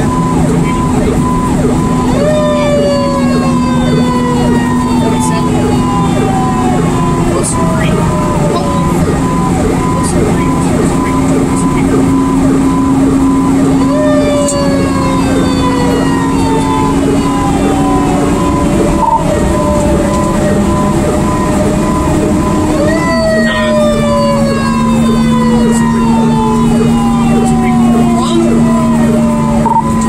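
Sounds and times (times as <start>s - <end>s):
fire engine siren winding: 0.0s - 30.0s
truck engine drone: 0.0s - 30.0s
short beeps: 19.0s - 19.3s.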